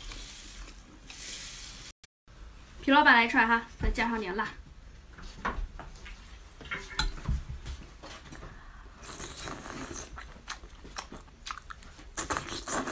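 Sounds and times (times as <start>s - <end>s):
person eating and slurping: 9.0s - 12.9s.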